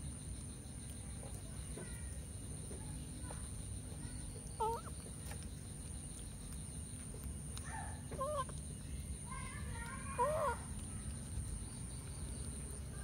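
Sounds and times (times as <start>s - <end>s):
low background rumble: 0.0s - 13.0s
animal call: 4.0s - 5.1s, 7.6s - 11.2s.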